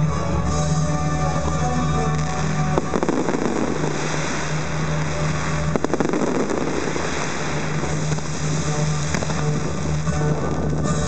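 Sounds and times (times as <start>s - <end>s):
firework bangs: 2.1s - 11.0s
crackling hiss of falling sparks: 2.2s - 11.0s.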